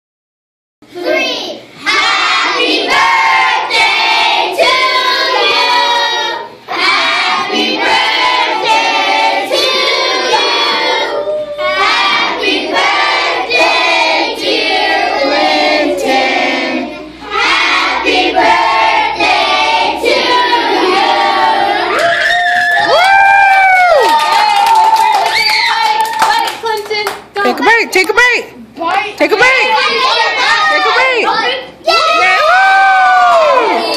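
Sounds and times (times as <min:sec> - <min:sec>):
children singing together: 0:01.0 - 0:22.0.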